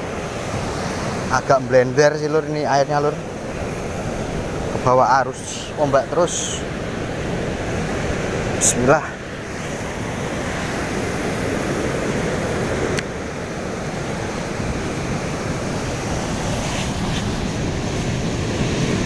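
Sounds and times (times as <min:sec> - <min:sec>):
ocean surf breaking: 0:00.0 - 0:19.0
wind on microphone: 0:06.9 - 0:19.0.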